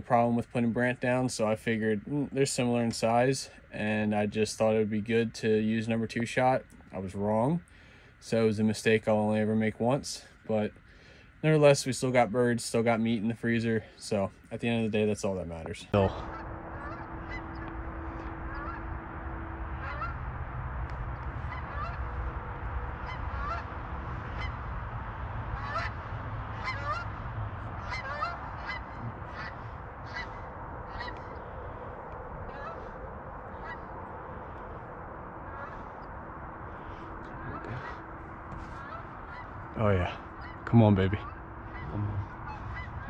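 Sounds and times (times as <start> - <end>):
steady low rumble: 0.0 - 43.0
geese honking: 16.0 - 43.0.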